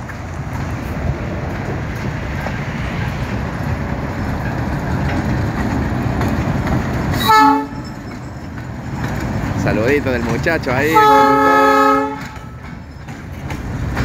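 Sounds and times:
diesel locomotive rumbling past: 0.0s - 14.0s
locomotive horn blast: 7.1s - 7.8s, 10.8s - 12.6s.

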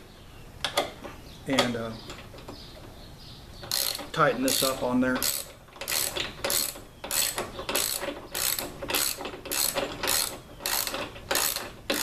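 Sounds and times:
hand ratchet clicking: 3.6s - 12.0s.

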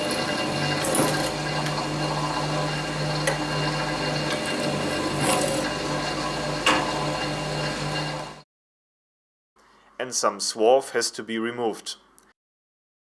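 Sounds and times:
drill press drilling steel: 0.0s - 8.4s.

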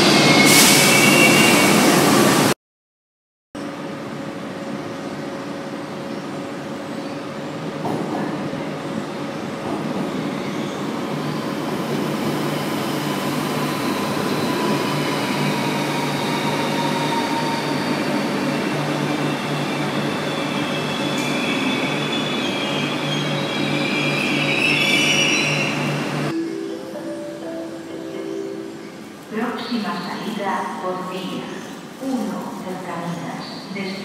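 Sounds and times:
wheel squeal: 13.8s - 26.3s.

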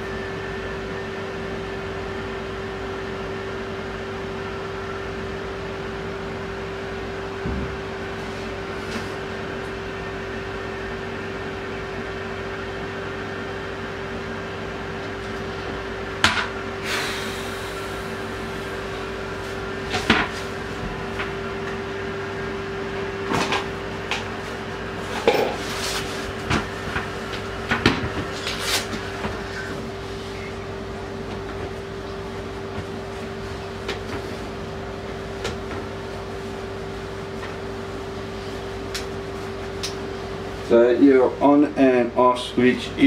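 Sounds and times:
steady hum: 0.0s - 43.0s.

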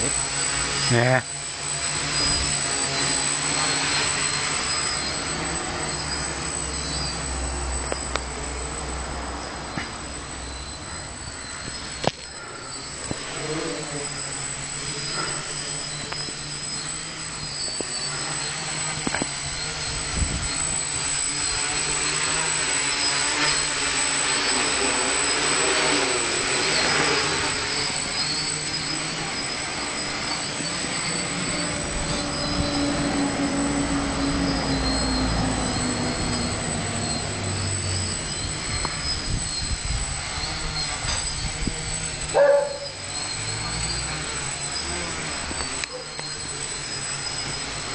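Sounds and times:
quadcopter propellers buzzing: 0.0s - 47.9s.

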